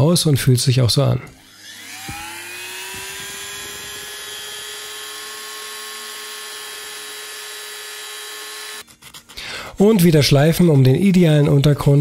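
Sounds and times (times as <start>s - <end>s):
rotary tool whining: 1.3s - 9.4s.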